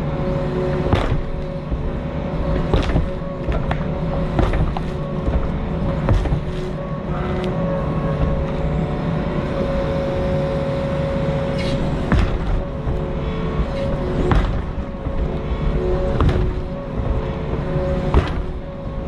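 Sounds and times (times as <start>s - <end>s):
diesel engine running: 0.0s - 19.0s
hydraulic whine: 0.0s - 19.0s
metallic clanks and knocks: 11.6s - 19.0s.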